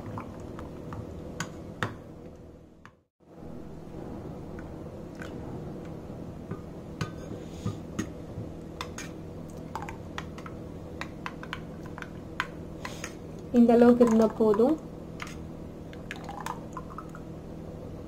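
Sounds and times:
low hum: 0.0 - 13.6.

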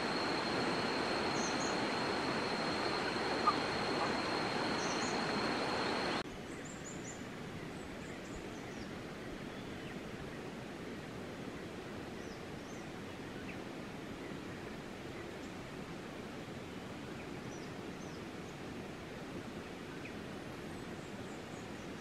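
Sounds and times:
faint high chirps: 0.0 - 6.2
high even whine: 0.0 - 6.2
rushing hiss: 0.0 - 6.2.

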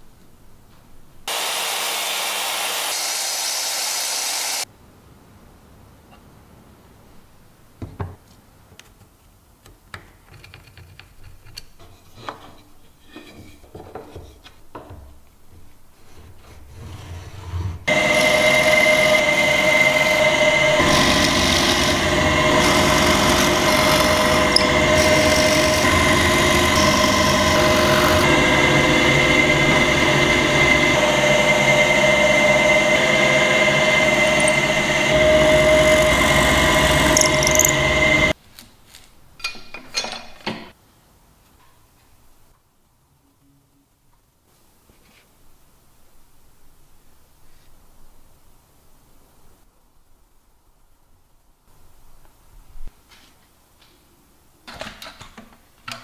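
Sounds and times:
drill press whining: 17.8 - 38.4.

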